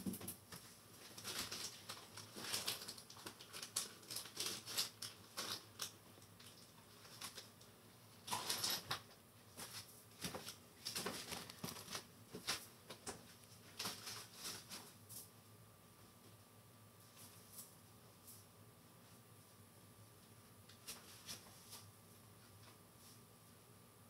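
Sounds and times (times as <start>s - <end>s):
packaging rustling: 1.0s - 7.5s, 9.6s - 12.7s.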